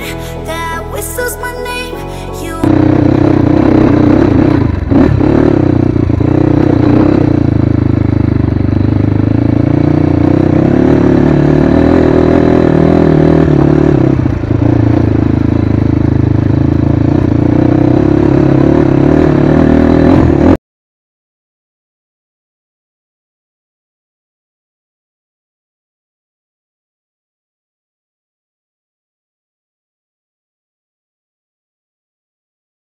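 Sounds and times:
dirt bike engine running: 2.7s - 20.6s.

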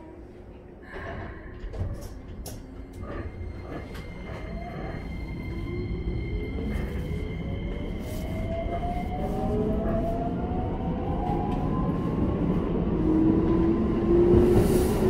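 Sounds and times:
train rumble: 0.0s - 15.0s
train clicks and knocks: 0.9s - 5.2s.

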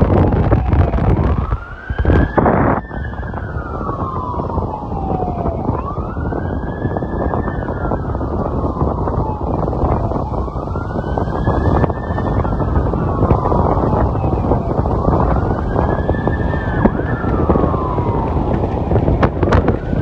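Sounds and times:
distant siren wailing: 0.0s - 20.0s
road rumble: 0.0s - 20.0s
wind on microphone: 0.0s - 20.0s.

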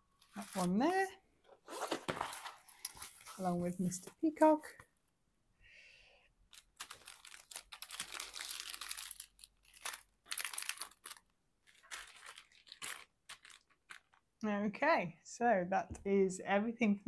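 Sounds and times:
plastic packaging crinkling: 6.5s - 14.3s.

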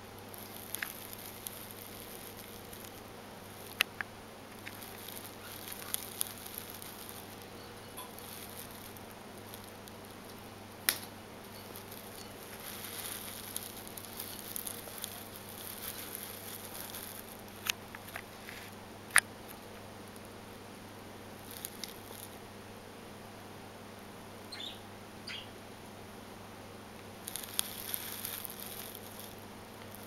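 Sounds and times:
bird rustling on carpet: 11.8s - 17.4s, 27.3s - 30.0s.

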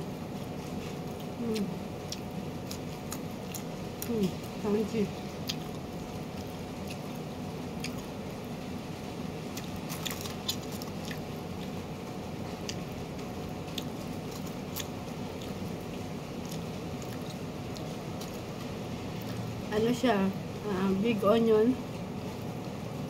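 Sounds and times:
person chewing crunchy broccoli: 0.1s - 8.3s, 9.4s - 19.6s.

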